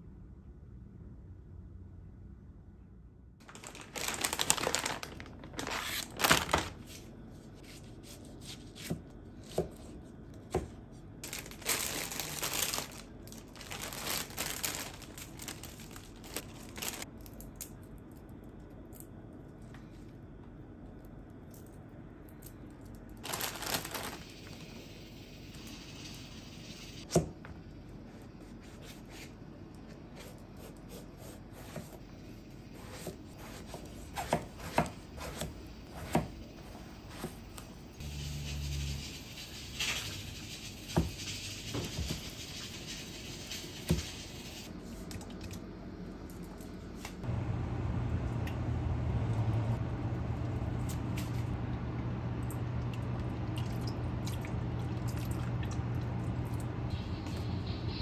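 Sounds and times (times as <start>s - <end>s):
steady low hum: 44.4s - 58.0s.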